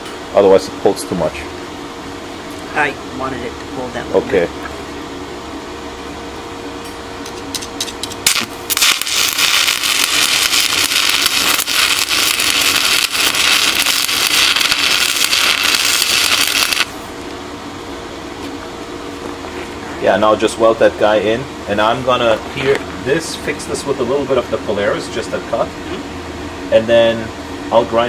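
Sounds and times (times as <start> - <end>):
welding arc crackling: 8.0 - 17.3.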